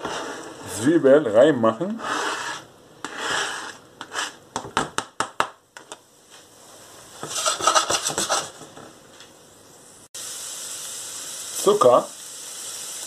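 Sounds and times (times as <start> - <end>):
pan scraping on glass hob: 0.0 - 0.8, 2.0 - 4.4, 7.2 - 8.6.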